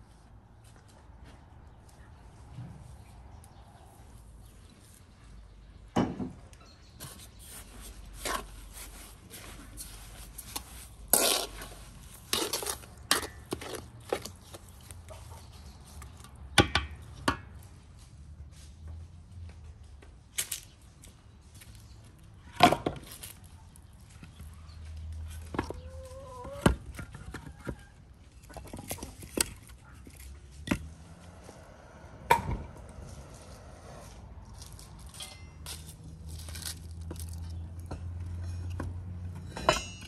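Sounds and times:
wooden spatula scraping metal bowl: 0:07.1 - 0:14.3.

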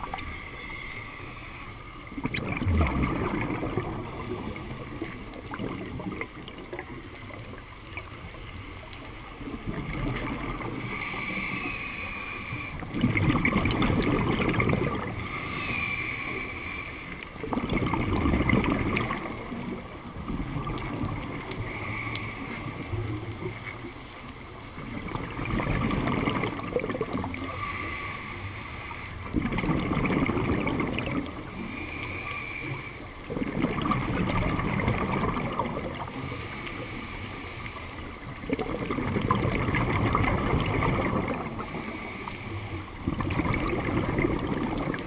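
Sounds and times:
regulator hissing inhale: 0:00.0 - 0:02.2, 0:03.8 - 0:05.4, 0:10.6 - 0:13.0, 0:15.1 - 0:17.4, 0:21.5 - 0:23.6, 0:27.3 - 0:29.4, 0:31.3 - 0:33.3, 0:36.0 - 0:38.4, 0:41.6 - 0:43.0
bubbling exhaled air: 0:02.1 - 0:08.0, 0:09.4 - 0:23.6, 0:24.8 - 0:45.0.

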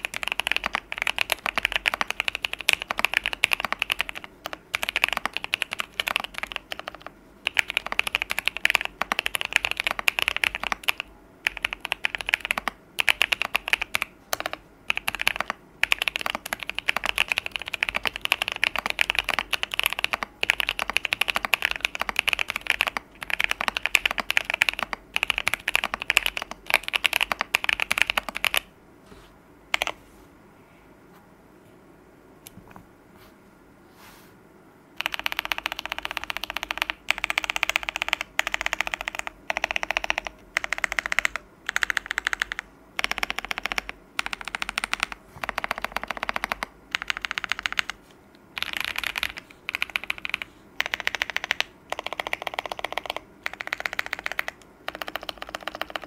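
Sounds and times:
fast typing on mechanical keyboard: 0:00.0 - 0:28.7, 0:29.7 - 0:30.0, 0:35.0 - 0:48.0, 0:48.6 - 0:56.0.

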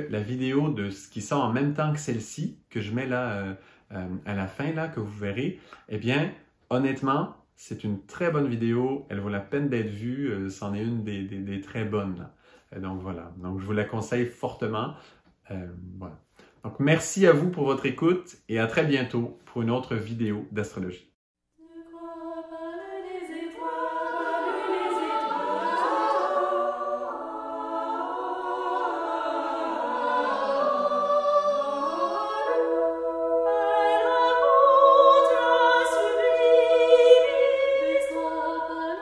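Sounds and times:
choir singing in harmony: 0:21.6 - 0:39.0.

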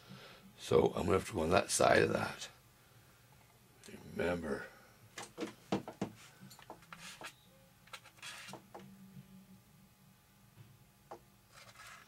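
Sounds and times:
low steady hum: 0:08.7 - 0:12.0.

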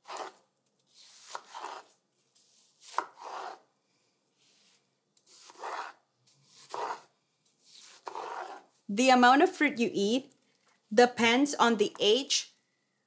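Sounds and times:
knife slicing watermelon: 0:00.0 - 0:03.6, 0:05.2 - 0:08.7.

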